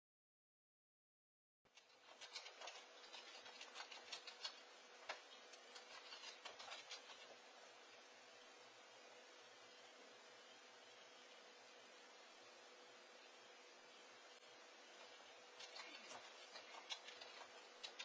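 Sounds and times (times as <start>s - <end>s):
microphone hiss and hum: 1.7s - 18.0s.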